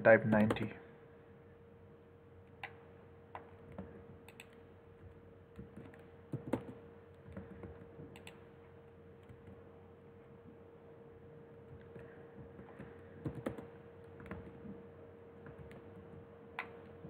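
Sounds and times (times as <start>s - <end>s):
faint steady hum: 0.0s - 17.0s
keyboard keys tapping: 3.4s - 8.4s, 11.7s - 14.8s.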